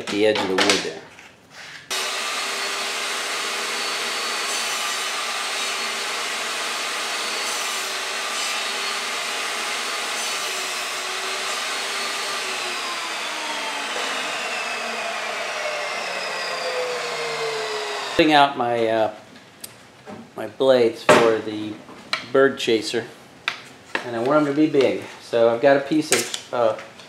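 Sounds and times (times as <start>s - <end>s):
table saw cutting wood: 1.9s - 18.4s.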